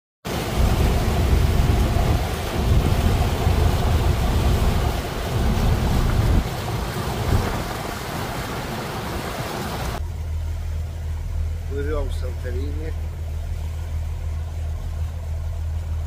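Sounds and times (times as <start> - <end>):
water rushing: 0.3 - 16.0
wind buffeting microphone: 0.5 - 8.4.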